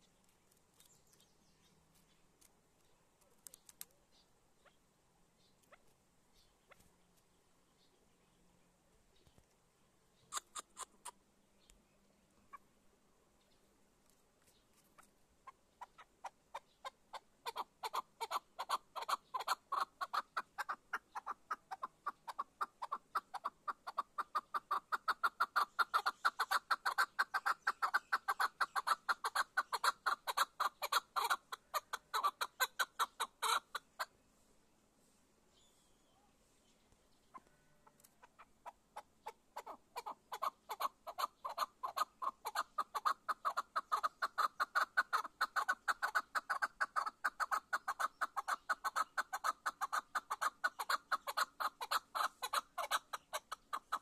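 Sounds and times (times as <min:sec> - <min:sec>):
partridge clucking calls: 0:10.2 - 0:11.8, 0:14.4 - 0:34.1, 0:37.2 - 0:54.0.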